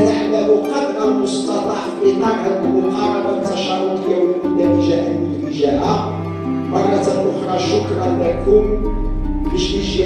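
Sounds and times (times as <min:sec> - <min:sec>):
melody of long held notes: 0:00.0 - 0:10.0
steady musical accompaniment: 0:00.0 - 0:10.0.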